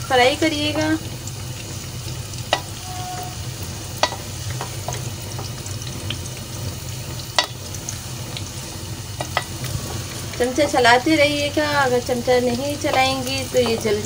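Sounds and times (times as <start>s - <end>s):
vegetables sizzling in hot oil: 0.0s - 14.0s
wooden spoon knocking on pan: 4.0s - 5.6s, 9.2s - 9.6s, 12.8s - 14.0s.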